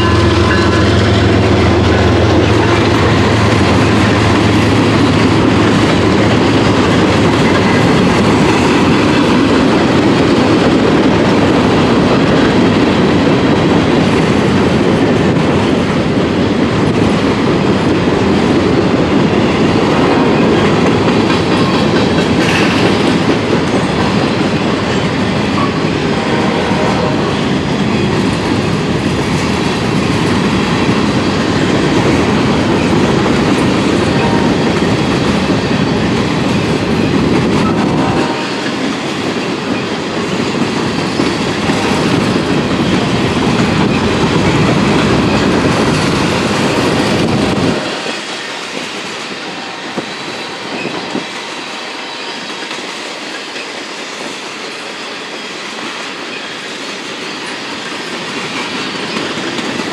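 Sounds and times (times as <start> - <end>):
freight train rolling past: 0.0 - 59.9.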